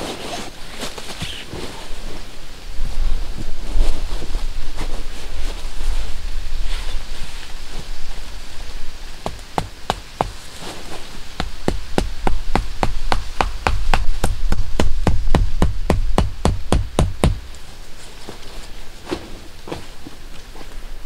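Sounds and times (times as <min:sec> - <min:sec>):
hatchet knocking tent stake: 0:09.3 - 0:10.4, 0:11.4 - 0:17.4.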